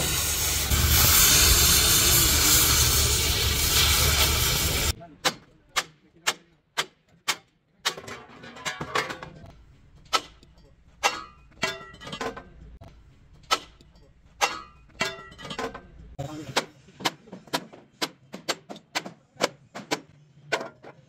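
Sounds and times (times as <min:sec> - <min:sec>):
hammer striking steel: 0:10.0 - 0:12.0, 0:13.4 - 0:15.4.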